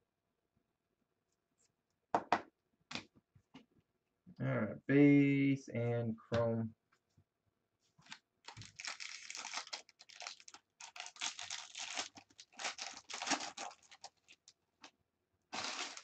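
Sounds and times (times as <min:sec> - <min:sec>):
foil wrapper tearing and crinkling: 0:08.4 - 0:14.6, 0:15.5 - 0:16.0.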